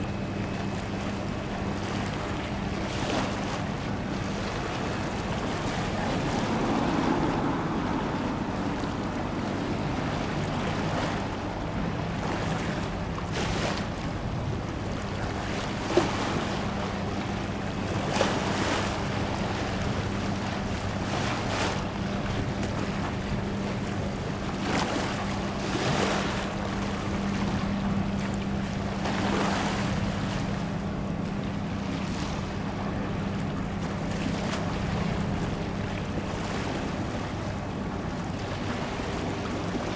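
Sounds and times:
steady low hum: 0.0s - 39.9s
water lapping: 0.0s - 39.9s
wind buffeting microphone: 3.7s - 13.0s.

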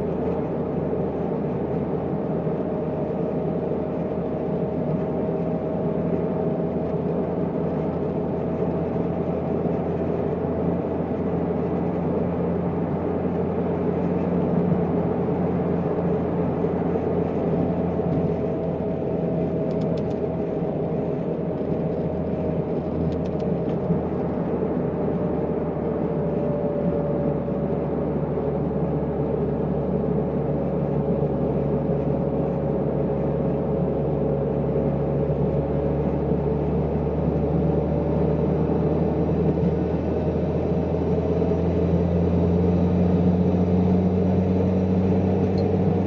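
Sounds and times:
car engine and road noise: 0.0s - 46.0s.

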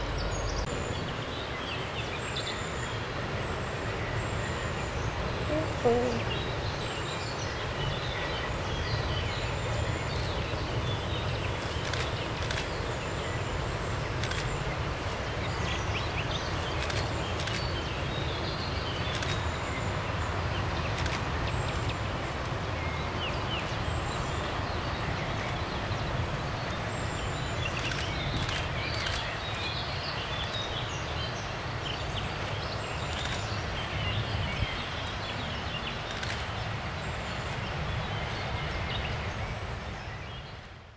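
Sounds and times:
birds chirping: 5.0s - 13.3s.

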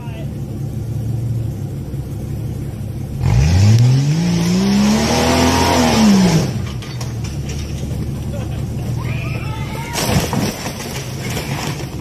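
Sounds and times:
engine revving hard: 3.2s - 6.6s.

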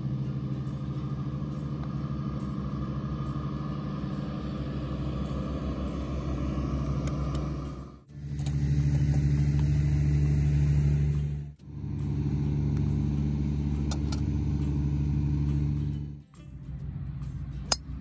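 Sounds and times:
engine hum: 0.0s - 18.0s.

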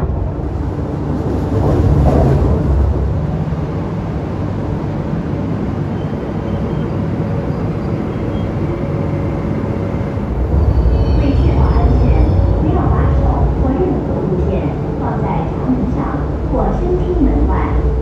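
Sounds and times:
faint train whine: 0.0s - 18.0s
metro train rumble: 0.0s - 18.0s.

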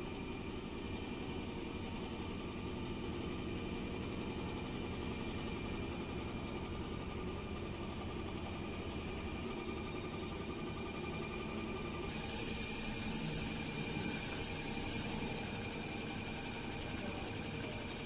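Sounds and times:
sewing machine humming: 12.1s - 18.0s.

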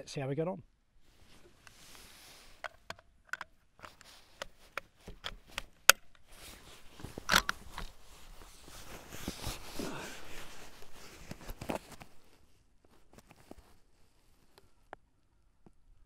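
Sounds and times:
rifle rattle: 2.5s - 8.0s
rifle bolt clicks and knocks: 2.6s - 6.3s, 7.0s - 8.0s.

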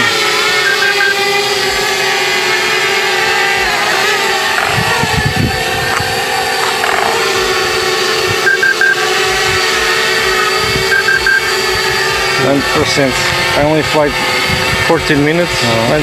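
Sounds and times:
drone propellers whining: 0.0s - 16.0s
low-battery alarm beeps: 0.6s - 1.2s, 8.4s - 9.0s, 10.9s - 11.5s.

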